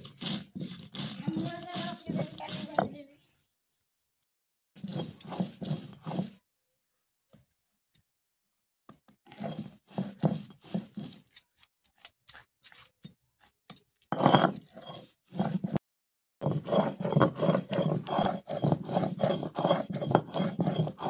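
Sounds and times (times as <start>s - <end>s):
small scrapes and clicks: 0.0s - 3.0s, 4.8s - 6.4s, 9.0s - 15.8s
stone roller grinding seeds: 0.0s - 3.1s, 4.8s - 6.4s, 9.0s - 15.8s, 16.4s - 21.0s.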